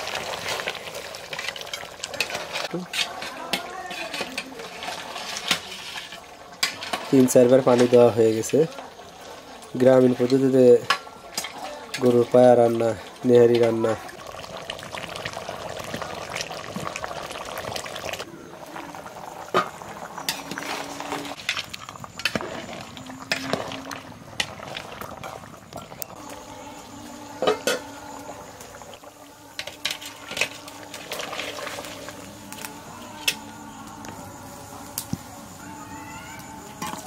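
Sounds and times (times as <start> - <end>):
broth bubbling: 11.2 - 32.4.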